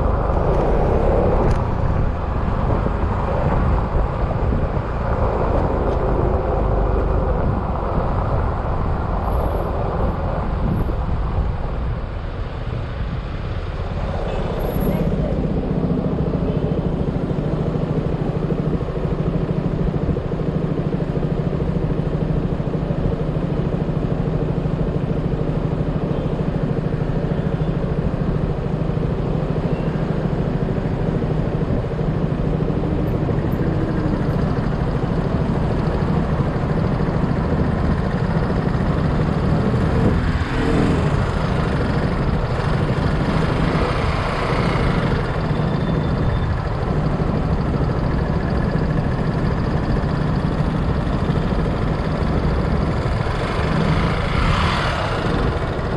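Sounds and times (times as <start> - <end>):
steady rushing noise: 0.0 - 55.9
scooter engine running: 15.1 - 55.9.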